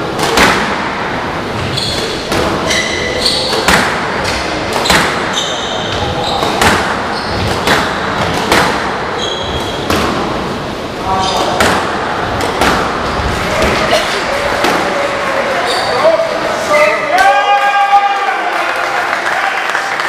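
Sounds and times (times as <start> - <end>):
squash ball hits: 0.0 - 15.2
shoes squeaking on wooden floor: 1.6 - 8.0, 9.0 - 9.9, 15.5 - 16.3.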